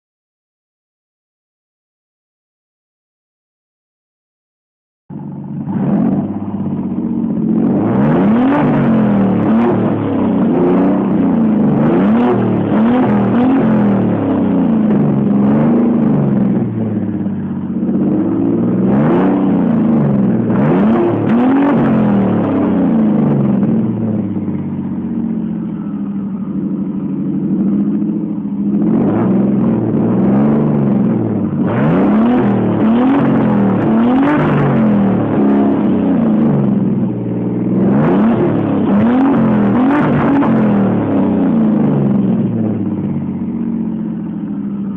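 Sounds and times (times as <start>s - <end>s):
car engine revving: 5.1s - 44.9s.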